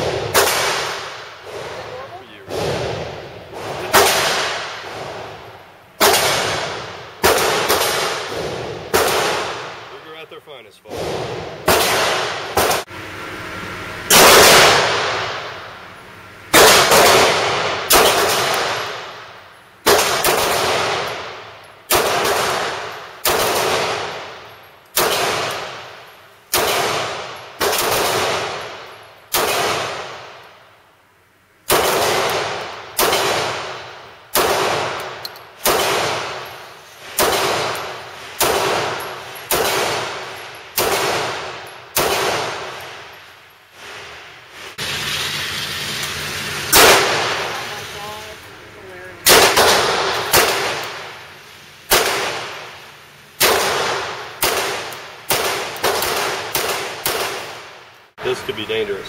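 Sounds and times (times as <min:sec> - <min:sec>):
pistol shots echoing indoors: 0:00.0 - 0:01.9, 0:02.5 - 0:09.9, 0:10.9 - 0:12.9, 0:14.1 - 0:15.7, 0:16.5 - 0:30.6, 0:31.6 - 0:43.3, 0:46.7 - 0:47.6, 0:49.2 - 0:51.3, 0:51.9 - 0:57.9.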